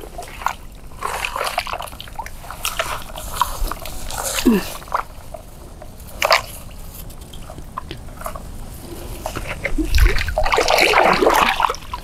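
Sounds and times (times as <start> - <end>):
hands splashing in pond water: 9.6 - 12.0.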